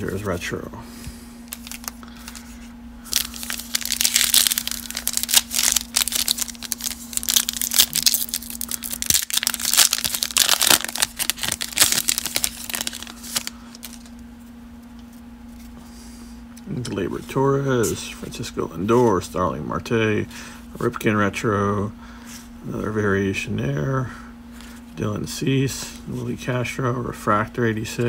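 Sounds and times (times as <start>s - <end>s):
foil wrapper tearing and crinkling: 1.5s - 2.5s, 3.1s - 14.2s.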